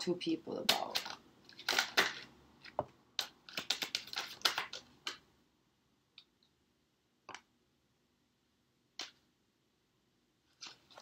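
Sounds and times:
cards being shuffled: 0.7s - 5.2s, 10.5s - 11.0s.

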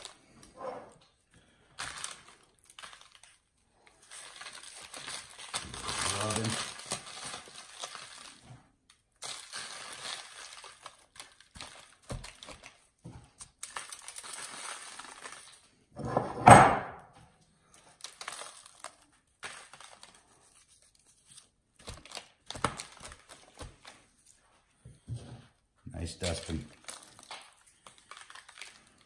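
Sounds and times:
paper rustling: 1.8s - 8.4s, 17.7s - 24.6s.

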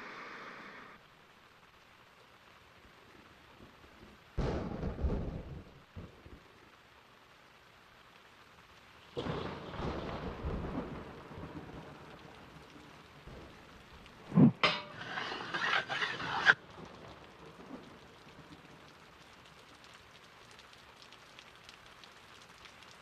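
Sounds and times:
rain hiss: 0.0s - 23.0s
thunder rumble: 4.4s - 6.4s, 9.2s - 19.0s.

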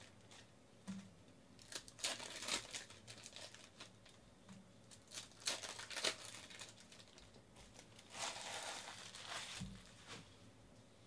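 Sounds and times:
foil wrapper crinkling: 1.6s - 4.2s, 4.9s - 10.1s.

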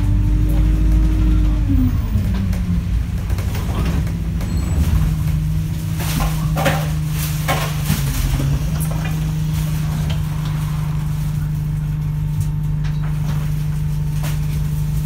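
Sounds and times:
bus doors opening: 0.0s - 11.4s
bus engine running: 0.0s - 15.0s.

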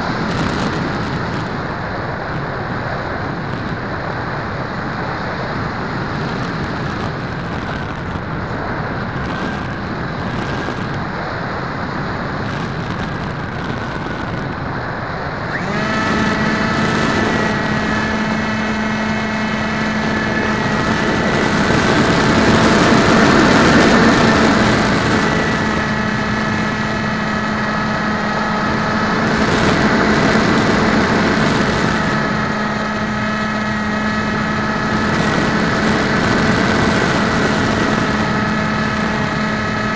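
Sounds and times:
model plane motor whine: 0.0s - 39.9s
wind rushing over camera: 0.0s - 39.9s.

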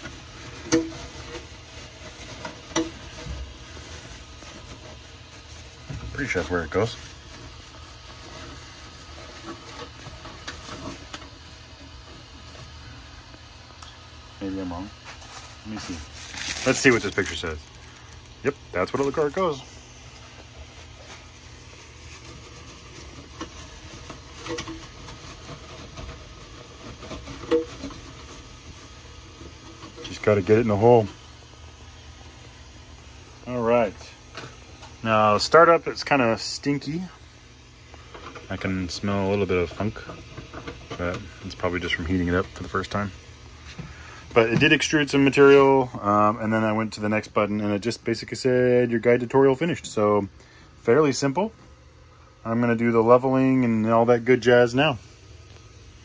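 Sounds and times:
low steady hum: 0.0s - 56.0s
light scraping and rustling: 15.0s - 31.2s.

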